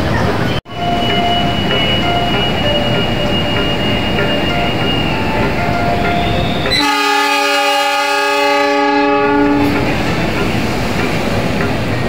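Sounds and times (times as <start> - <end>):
train carriages rumbling on rails: 0.0 - 12.0
train horn blast: 6.2 - 9.8.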